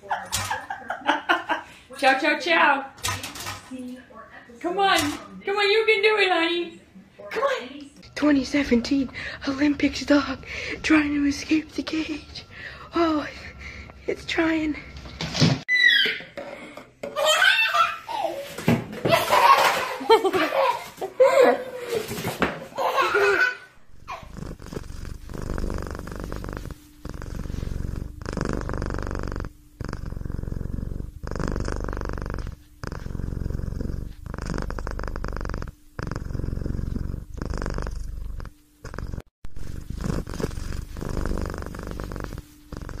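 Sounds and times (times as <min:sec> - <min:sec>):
cat purring: 0:08.1 - 0:14.9, 0:23.9 - 0:43.0.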